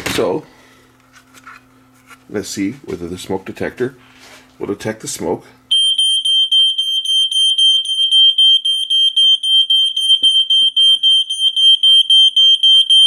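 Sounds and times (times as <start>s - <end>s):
smoke alarm pulsing tone: 5.7s - 13.0s.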